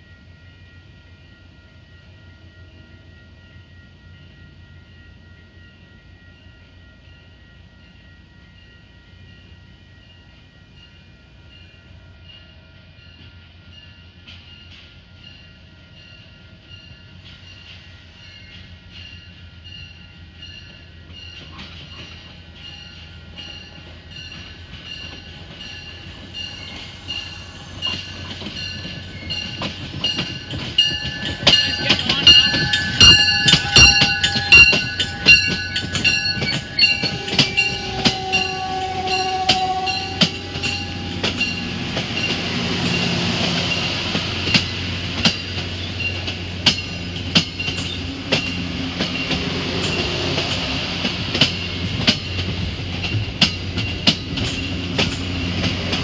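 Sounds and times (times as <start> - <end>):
train passing: 0.0 - 56.0
high ringing: 18.2 - 55.6
wheels clicking over rail joints: 27.8 - 56.0.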